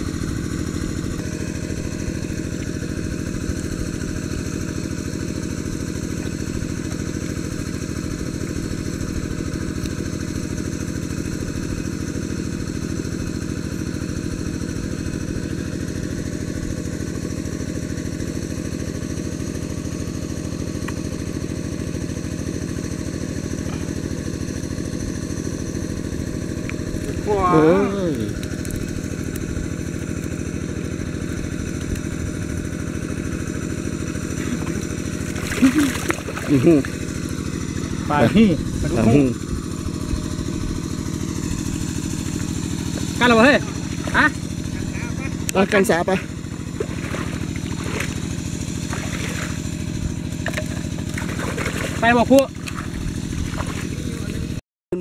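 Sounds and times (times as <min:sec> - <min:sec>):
small engine running: 0:00.0 - 0:55.0.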